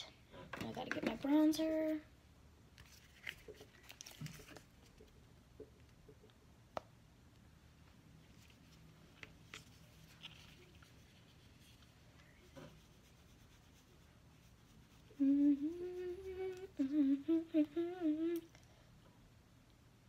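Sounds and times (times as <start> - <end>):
girl humming: 15.1 - 18.6.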